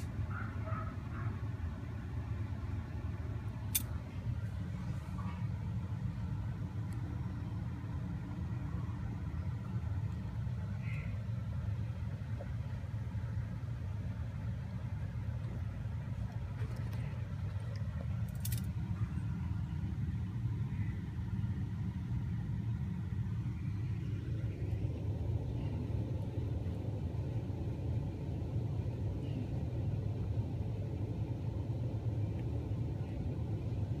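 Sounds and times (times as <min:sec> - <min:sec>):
vehicle rumble: 0:00.0 - 0:34.0
sharp click: 0:03.7 - 0:04.0.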